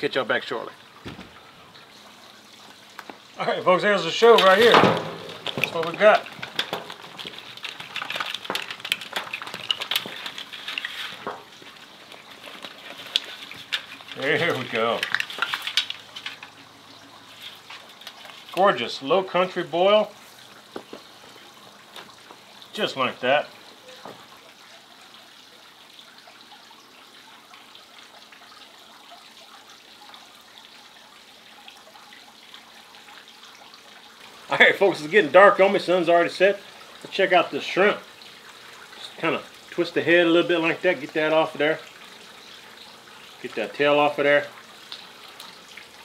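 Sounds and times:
trickle of running water: 0.0s - 46.0s
water drips: 0.0s - 46.0s
shellfish clattering onto table: 4.4s - 11.5s, 12.6s - 16.5s.

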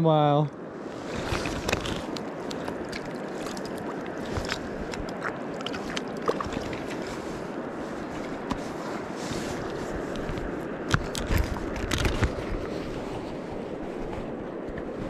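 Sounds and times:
river water lapping at bank: 0.6s - 14.9s
small splashes of hands in water: 1.1s - 7.2s.

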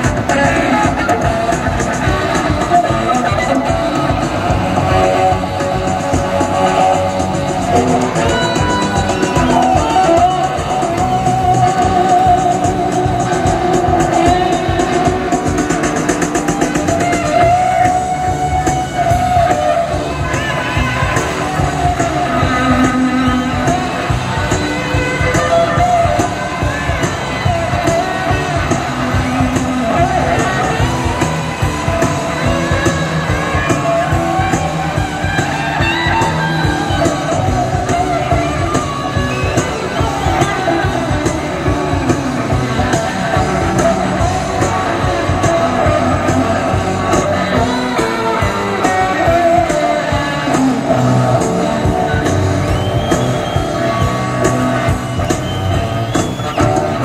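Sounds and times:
person singing: 0.0s - 55.1s
guitar: 0.0s - 57.0s
steady drum beat: 0.0s - 57.0s.

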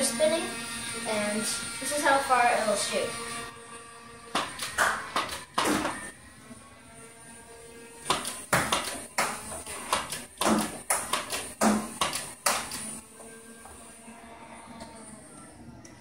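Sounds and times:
flywheel motors humming: 0.0s - 3.6s.

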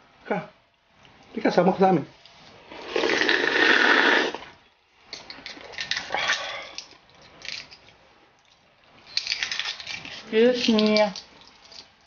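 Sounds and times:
loud slurping of broth: 2.7s - 4.5s.

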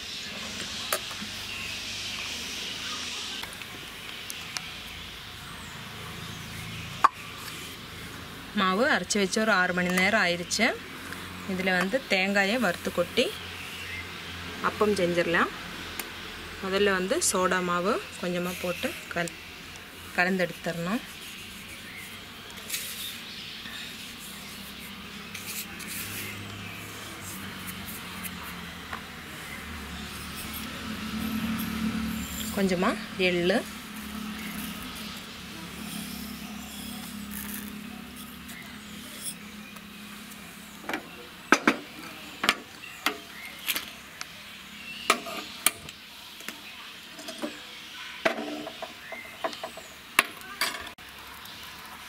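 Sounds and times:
fingers rustling powder: 20.5s - 28.6s, 34.4s - 39.5s.

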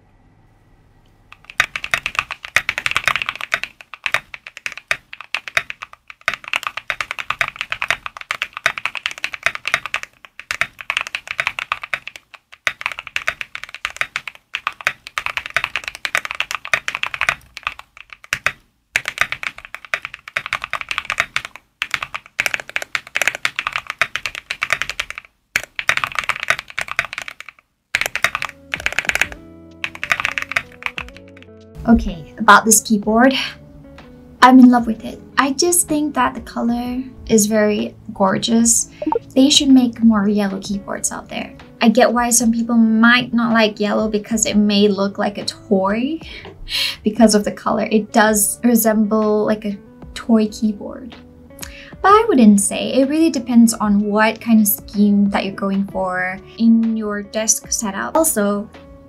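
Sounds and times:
mechanical keyboard typing: 1.3s - 31.5s.

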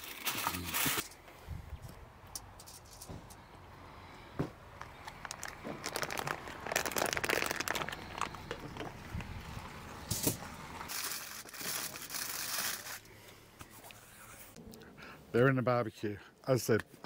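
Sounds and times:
aluminium foil crinkling: 0.0s - 1.2s, 4.8s - 9.0s, 10.9s - 13.1s
plastic bag crinkling: 4.8s - 9.0s, 10.9s - 13.1s.

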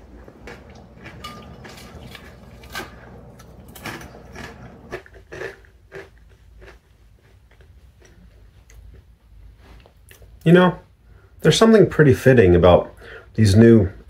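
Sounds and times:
person chewing crunchy chips: 0.0s - 9.1s.

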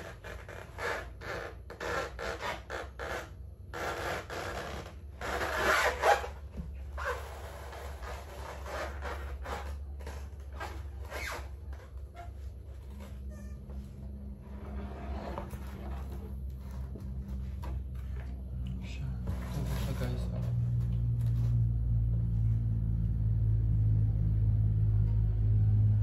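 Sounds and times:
packing material rubbing and scraping: 0.0s - 13.3s, 14.3s - 18.3s, 19.2s - 21.6s
low steady hum: 0.0s - 26.0s.

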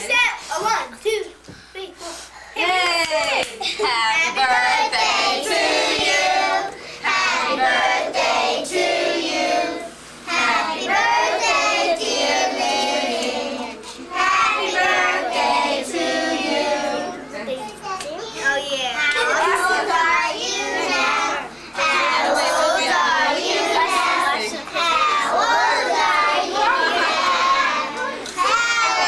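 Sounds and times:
children singing: 4.5s - 17.2s, 19.3s - 29.0s.

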